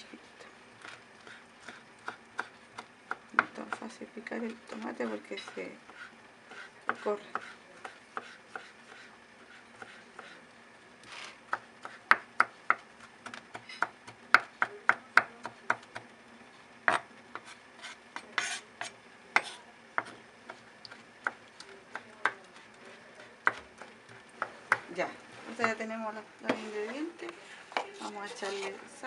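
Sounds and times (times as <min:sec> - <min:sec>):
knife scraping cutting board: 0:16.9 - 0:21.0, 0:27.7 - 0:28.8.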